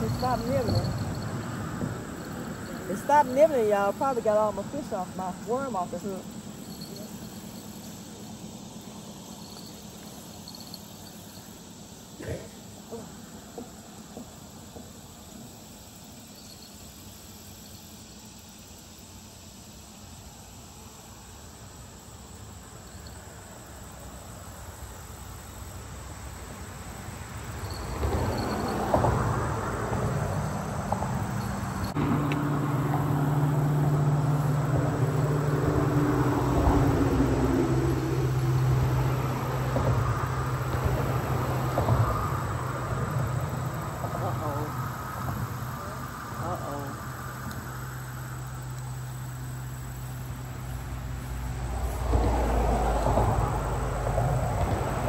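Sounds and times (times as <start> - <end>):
engine droning: 0.0 - 11.6, 27.4 - 55.0
faint insects chirping: 0.0 - 55.0.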